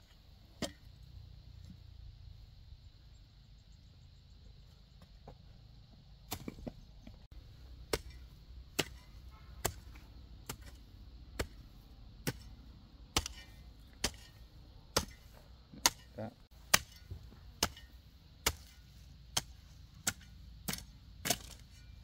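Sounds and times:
hoe chopping into soil: 6.3s - 6.8s, 7.8s - 22.0s.

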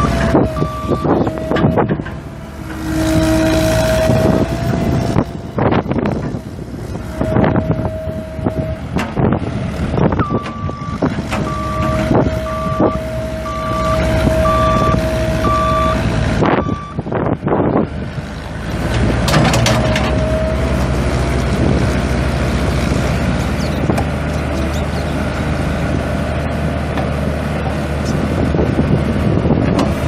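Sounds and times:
warning beeper: 0.0s - 1.9s, 7.2s - 8.9s, 10.2s - 17.0s
diesel engine running: 0.0s - 30.0s.

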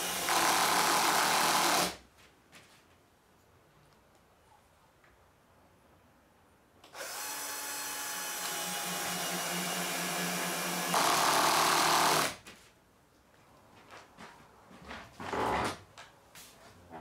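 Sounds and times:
cordless drill motor whine: 7.0s - 12.3s.

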